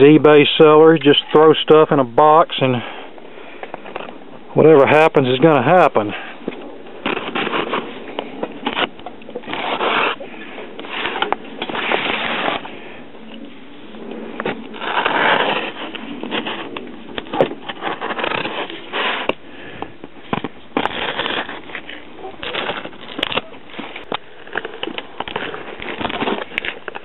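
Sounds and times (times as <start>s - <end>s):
packing tape tearing off cardboard: 7.0s - 10.2s, 10.8s - 12.7s, 14.4s - 27.0s
cardboard scraping and rustling: 7.0s - 12.8s, 14.3s - 27.0s.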